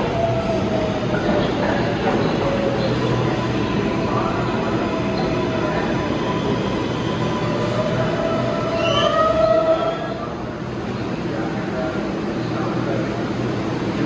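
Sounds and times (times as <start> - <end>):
subway train rumbling: 0.0 - 14.0
train whines and squeal: 0.0 - 14.0.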